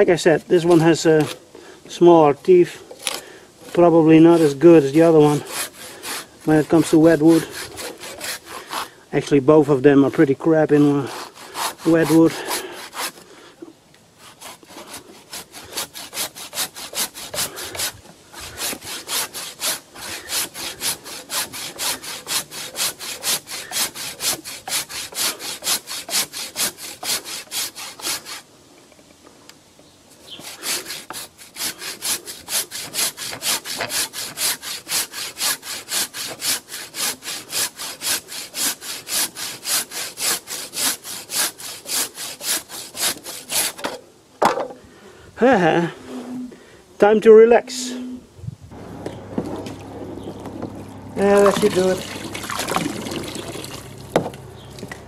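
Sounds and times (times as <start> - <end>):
handsaw cutting wet wood: 0.0 - 1.4, 3.7 - 9.0, 10.5 - 13.3, 14.2 - 28.5, 30.2 - 43.9, 51.2 - 54.0.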